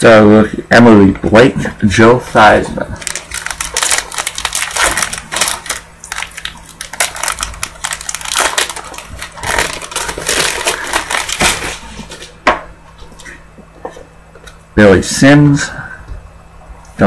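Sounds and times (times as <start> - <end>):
foil wrapper crinkling: 3.0 - 12.4.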